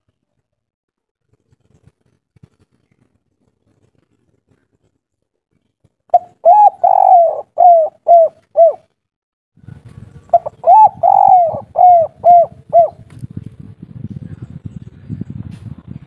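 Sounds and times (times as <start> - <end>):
dove cooing: 6.1 - 8.8, 10.3 - 13.1.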